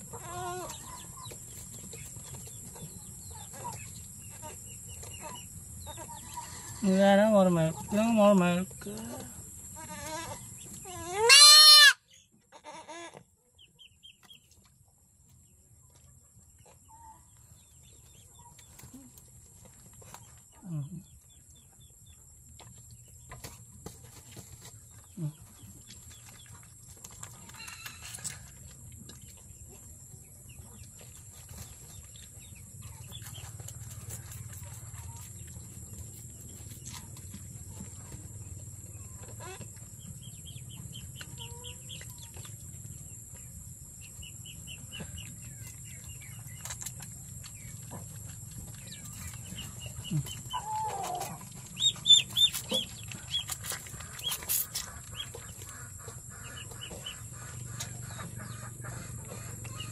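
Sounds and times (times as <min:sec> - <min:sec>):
young goat bleating: 0:09.8 - 0:13.2.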